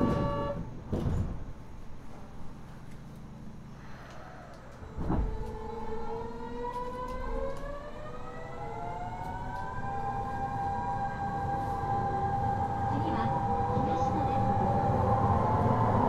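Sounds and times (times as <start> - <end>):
train inverter whining: 0.0 - 1.2, 4.1 - 16.0
thump: 0.9 - 1.4.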